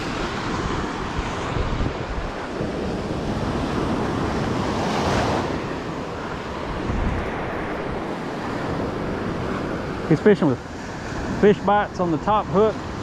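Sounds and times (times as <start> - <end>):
surf breaking on beach: 0.0 - 13.0
wind buffeting microphone: 0.0 - 13.0.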